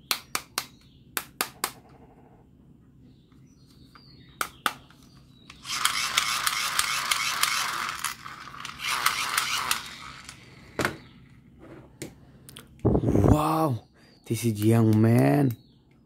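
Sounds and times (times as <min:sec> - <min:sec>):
toy gun trigger ratcheting clicks: 0:05.5 - 0:10.5.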